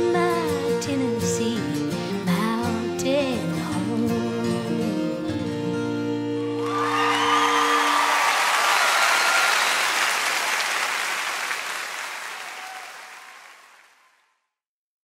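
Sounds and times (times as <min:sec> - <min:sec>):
audience applause: 0:06.6 - 0:14.3.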